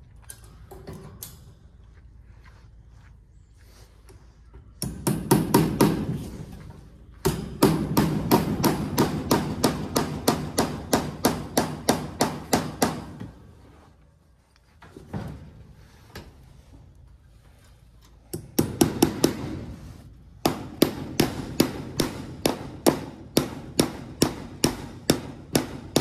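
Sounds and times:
hammer blows on wooden beam: 0:04.8 - 0:06.5, 0:07.1 - 0:13.4, 0:20.4 - 0:26.0.

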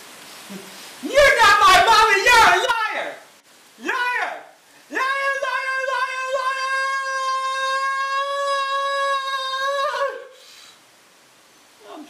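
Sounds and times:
man screaming: 0:01.0 - 0:03.2, 0:03.8 - 0:10.4.

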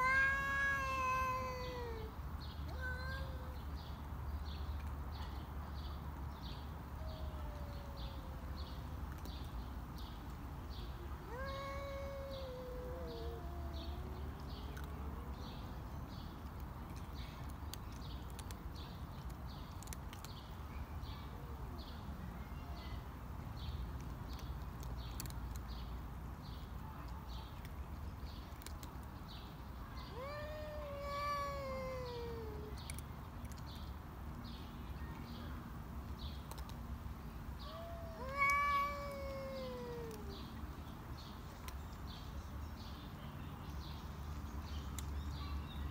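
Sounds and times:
cats yowling: 0:00.0 - 0:02.1, 0:02.7 - 0:03.6, 0:06.9 - 0:08.5, 0:11.2 - 0:14.9, 0:30.0 - 0:33.6, 0:37.6 - 0:40.6.

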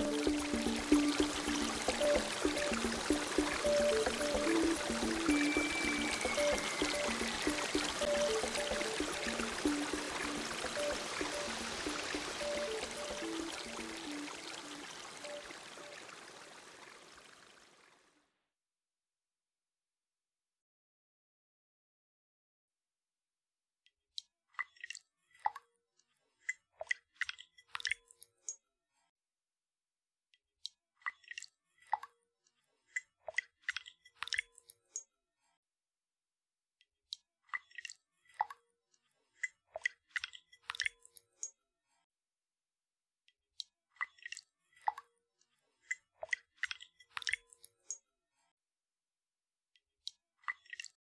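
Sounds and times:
water drops plopping: 0:00.0 - 0:16.0.

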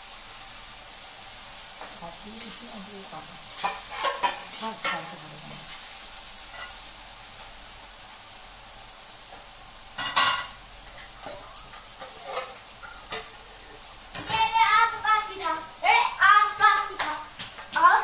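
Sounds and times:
chicken sizzling in a wok: 0:00.0 - 0:18.0
metal spatula scraping: 0:03.5 - 0:05.8, 0:06.4 - 0:06.8, 0:10.0 - 0:14.6.

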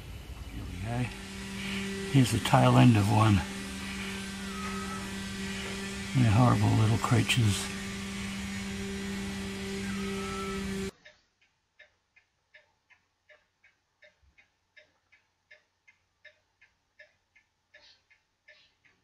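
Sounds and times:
electrical hum: 0:00.0 - 0:10.9
faint clock ticking: 0:10.9 - 0:19.0.

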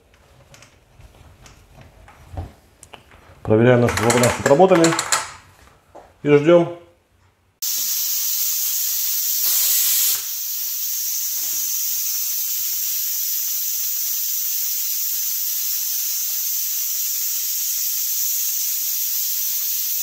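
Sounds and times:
pressure cooker steam hissing: 0:07.6 - 0:20.0.

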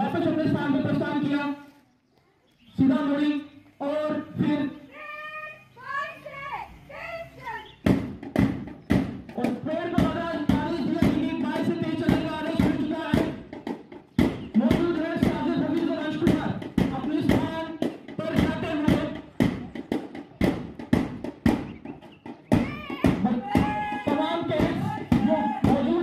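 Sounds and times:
bass drum marching beat: 0:07.7 - 0:26.0.

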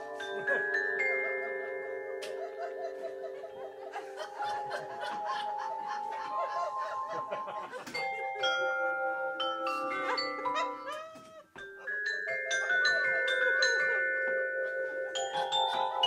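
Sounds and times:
glockenspiel notes ringing: 0:00.0 - 0:16.0
laughter: 0:00.5 - 0:08.1, 0:15.3 - 0:16.0.

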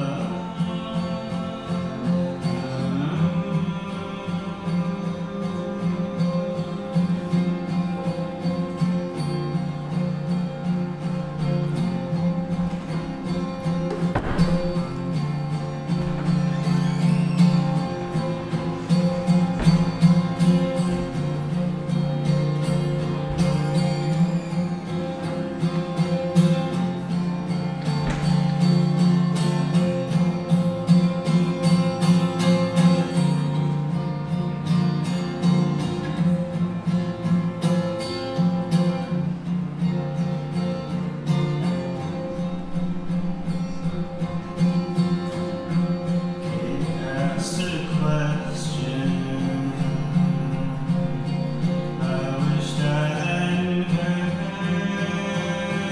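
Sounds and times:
man singing: 0:00.0 - 0:07.1, 0:46.4 - 0:55.9
acoustic guitar playing: 0:00.0 - 0:55.9.

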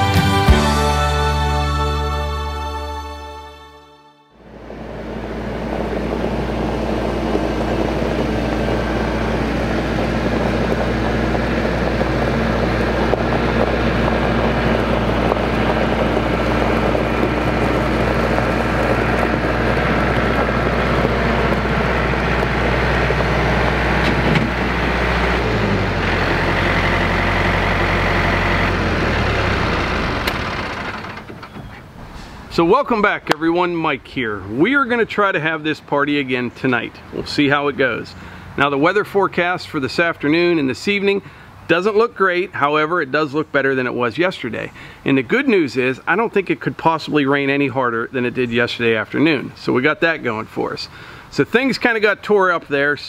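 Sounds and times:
tractor diesel engine running: 0:00.0 - 0:53.0
tyres on gravel: 0:04.4 - 0:53.0.

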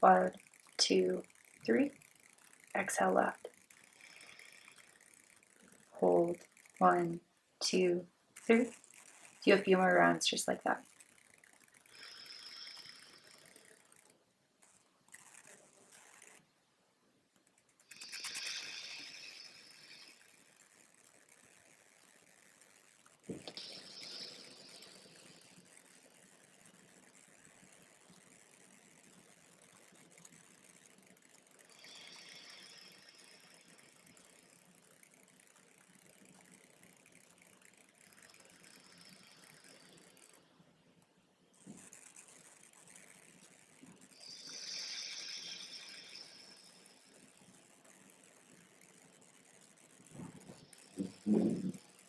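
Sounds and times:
breathing through the nose: 0:11.9 - 0:13.5, 0:17.9 - 0:20.2, 0:44.2 - 0:46.6.

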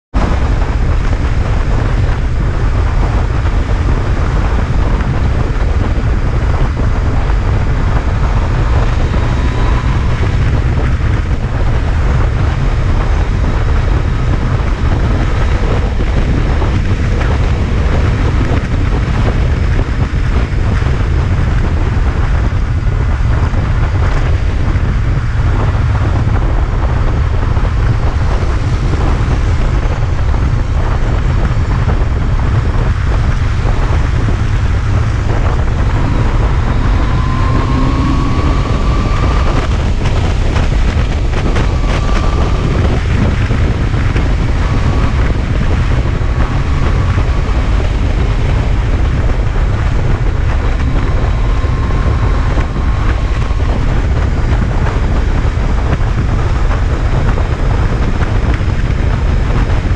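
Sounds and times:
motorcycle engine running: 0:00.0 - 0:59.9
wind rumble on microphone: 0:00.0 - 0:59.9.

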